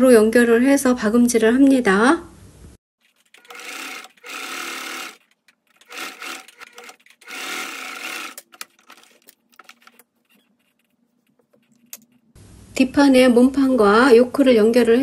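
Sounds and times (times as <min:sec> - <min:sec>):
sewing machine stitching: 0:03.0 - 0:10.9.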